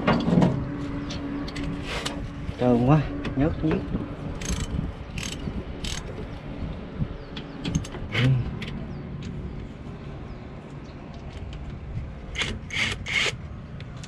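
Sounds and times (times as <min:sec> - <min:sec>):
low steady rumble: 0:00.0 - 0:14.0
ratchet rasping strokes: 0:04.4 - 0:06.1.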